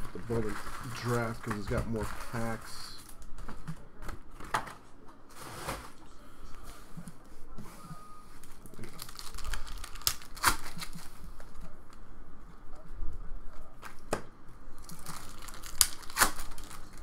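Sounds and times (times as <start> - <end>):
foil wrappers tearing and crinkling: 0.0 - 3.5, 8.4 - 11.7, 14.8 - 17.0.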